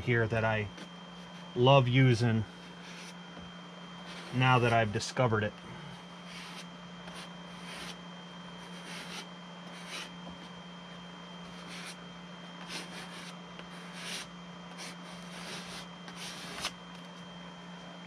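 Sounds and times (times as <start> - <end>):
spreader scraping filler paste: 6.1 - 8.0, 8.6 - 10.6, 12.6 - 17.2.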